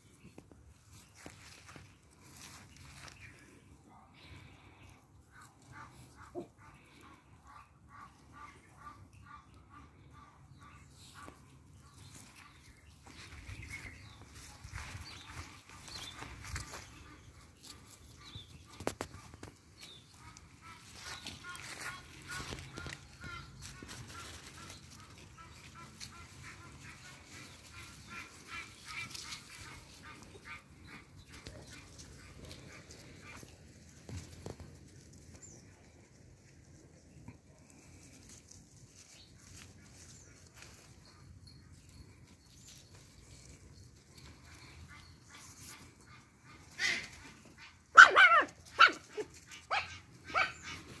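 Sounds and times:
puppy yipping: 0:47.9 - 0:51.0.

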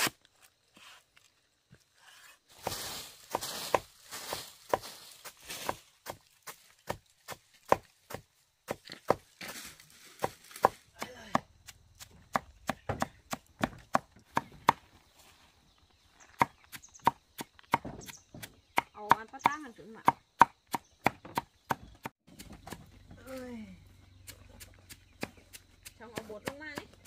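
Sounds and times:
machete chopping bamboo: 0:00.0 - 0:00.2, 0:02.6 - 0:09.3, 0:10.2 - 0:14.8, 0:16.4 - 0:22.8.

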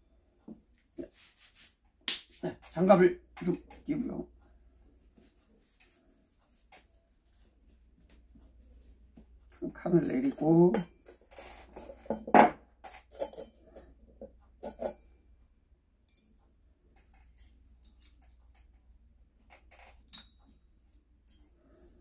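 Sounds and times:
metal tools handling clicks: 0:16.1 - 0:16.4.

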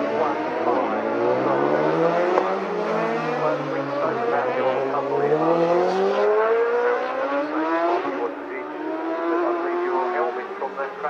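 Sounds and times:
racing motorcycle engines: 0:00.0 - 0:11.0.

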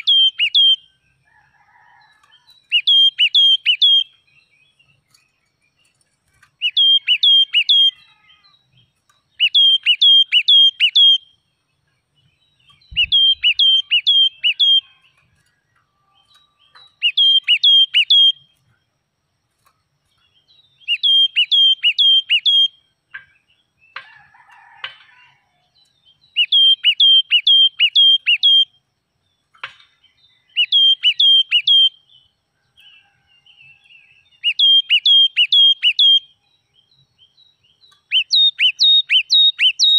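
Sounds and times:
songbird singing high notes: 0:00.0 - 0:00.9, 0:02.6 - 0:04.2, 0:06.6 - 0:11.4, 0:12.7 - 0:15.3, 0:16.2 - 0:18.6, 0:20.7 - 0:22.8, 0:26.2 - 0:28.8, 0:30.4 - 0:32.3, 0:34.4 - 0:36.4, 0:37.8 - 0:39.9.

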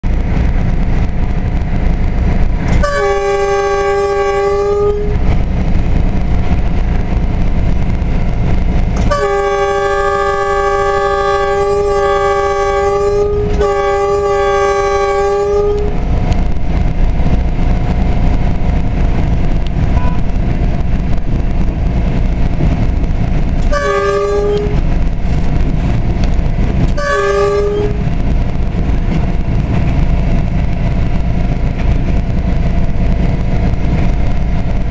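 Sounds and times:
locomotive and wheels rumbling: 0:00.0 - 0:34.9
locomotive horn blasts: 0:02.7 - 0:05.3, 0:09.0 - 0:16.1, 0:23.6 - 0:24.9, 0:26.9 - 0:28.2.

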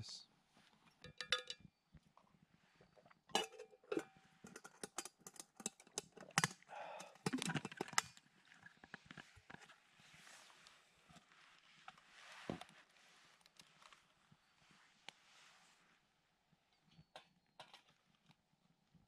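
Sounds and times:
spoon tapping metal pot: 0:01.0 - 0:01.7
pots and lids knocking: 0:01.1 - 0:01.6.

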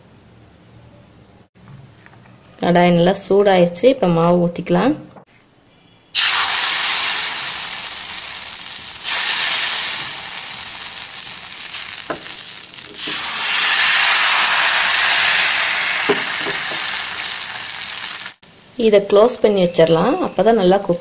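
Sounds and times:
batter sizzling in hot pan: 0:06.2 - 0:20.8.

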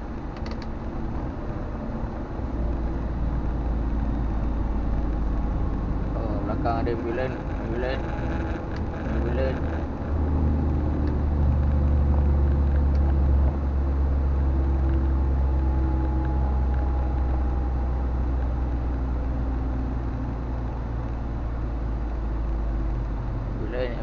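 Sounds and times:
road noise: 0:00.0 - 0:24.0
truck diesel engine droning: 0:00.0 - 0:24.0.

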